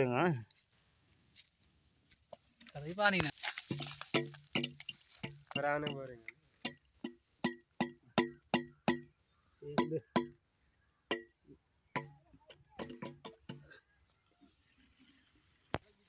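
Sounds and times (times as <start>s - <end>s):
metal tool striking metal pipe: 3.7s - 9.1s, 9.8s - 10.4s, 11.1s - 11.4s, 12.0s - 13.7s.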